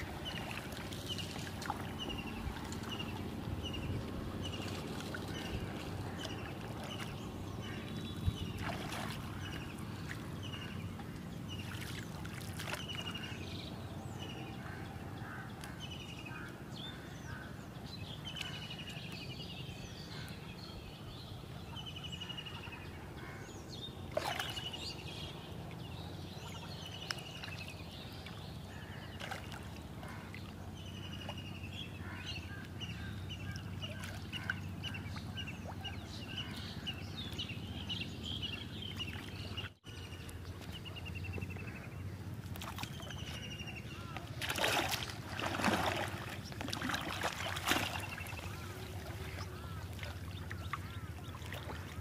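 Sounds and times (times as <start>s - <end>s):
knocks and light splashes: 0.0s - 3.2s, 4.5s - 13.3s, 42.4s - 43.4s, 44.0s - 52.0s.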